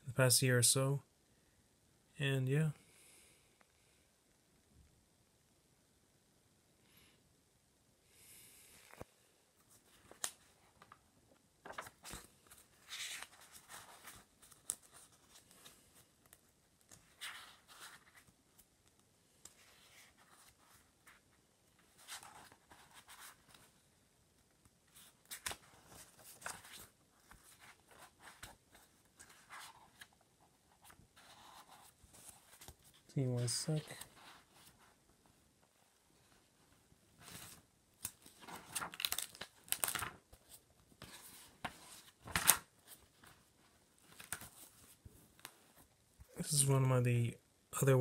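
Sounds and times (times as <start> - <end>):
paper pages rustling: 8.9 - 11.0, 11.6 - 23.7, 24.9 - 35.4, 36.2 - 45.9.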